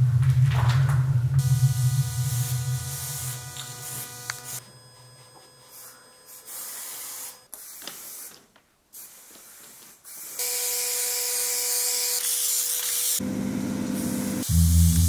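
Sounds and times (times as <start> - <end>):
steady hum: 0.0 - 6.5
spray-paint cans hissing: 1.5 - 4.6, 5.7 - 10.4
low music with heavy bass: 14.4 - 15.0.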